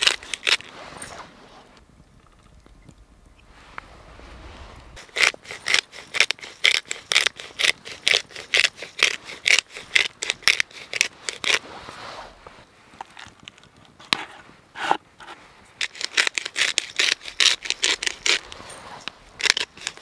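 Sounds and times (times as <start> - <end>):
pepper grinder crunching peppercorns: 5.0 - 11.6, 15.8 - 18.4, 19.4 - 20.0.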